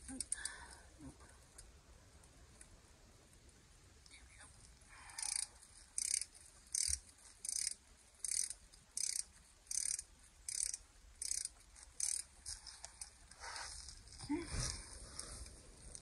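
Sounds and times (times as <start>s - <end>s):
hand ratchet clicking: 5.2s - 12.3s.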